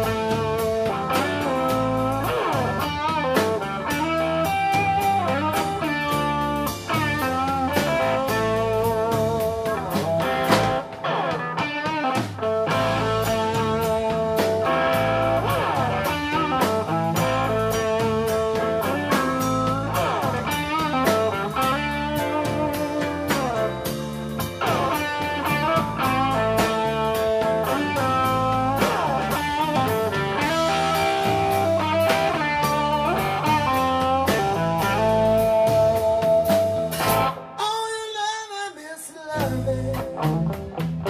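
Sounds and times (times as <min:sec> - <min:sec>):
electric bass: 0:00.0 - 0:37.6, 0:39.4 - 0:41.0
electric guitar: 0:00.0 - 0:37.7, 0:39.0 - 0:41.0
keyboard: 0:00.0 - 0:38.3
drums: 0:00.0 - 0:41.0.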